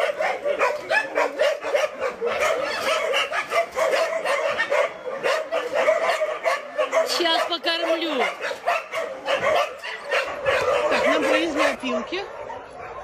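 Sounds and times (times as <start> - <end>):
dogs barking and yipping: 0.0 - 13.0.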